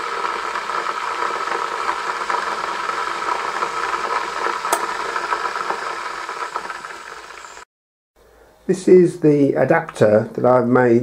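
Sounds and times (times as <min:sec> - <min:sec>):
electric kettle hissing: 0:00.0 - 0:07.7
kettle click: 0:04.6 - 0:05.1.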